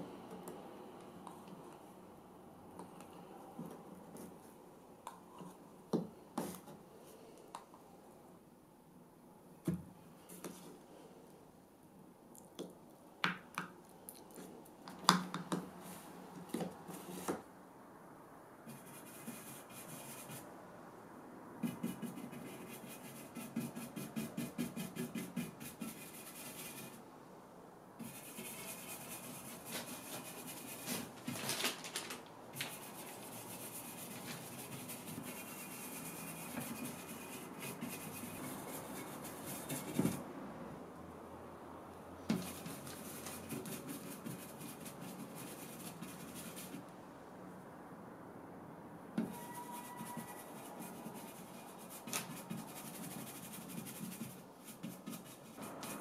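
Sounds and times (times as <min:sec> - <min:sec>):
brush scrubbing and dabbing: 0:18.7 - 0:20.5, 0:21.6 - 0:27.0, 0:28.0 - 0:31.4, 0:32.6 - 0:40.2, 0:42.3 - 0:46.8, 0:49.3 - 0:56.0.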